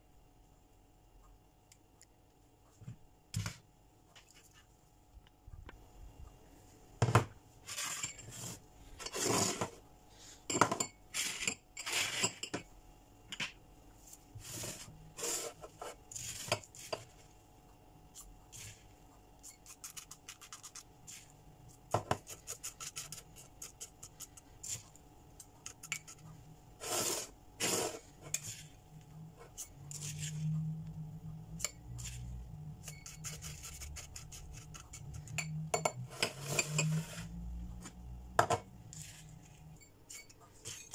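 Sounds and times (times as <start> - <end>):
spoon scraping ceramic dish: 7.7 - 9.7, 10.5 - 12.6, 31.6 - 37.4, 38.4 - 40.9.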